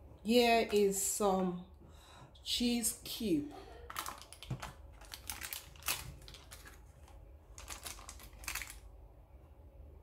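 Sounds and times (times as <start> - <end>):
cheese cubes shifting: 3.9 - 8.9.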